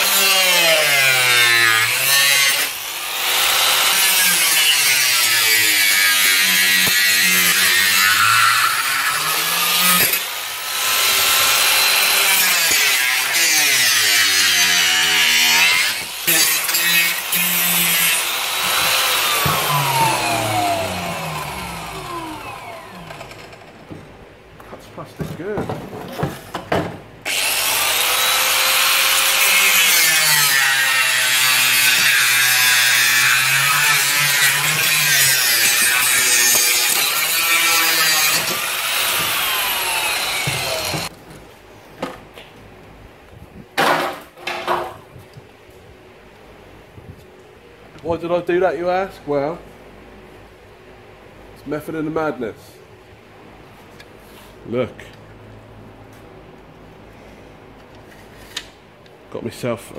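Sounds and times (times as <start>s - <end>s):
angle grinder cutting plastic: 0.0s - 23.6s, 27.3s - 41.1s
angle grinder motor winding down: 18.3s - 23.6s.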